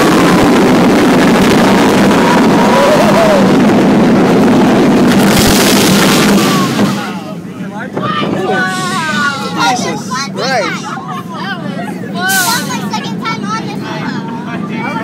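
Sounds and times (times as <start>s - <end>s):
wind buffeting microphone: 0.0s - 10.0s
roller coaster rumbling on track: 0.0s - 15.0s.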